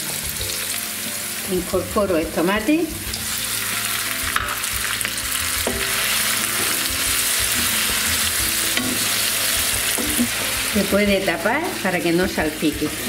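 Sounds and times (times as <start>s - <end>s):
sofrito sizzling in hot oil: 0.0s - 13.0s
wooden spatula stirring: 4.3s - 10.9s.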